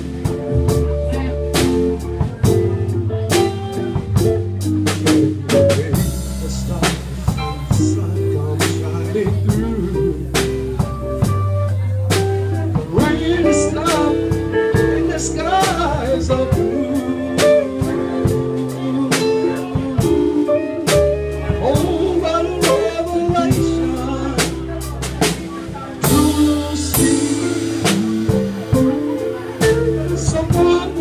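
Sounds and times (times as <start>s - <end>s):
drums: 0.0s - 31.0s
electric guitar: 0.0s - 31.0s
keyboard: 0.0s - 31.0s
man singing into microphone: 5.2s - 11.0s, 12.7s - 31.0s.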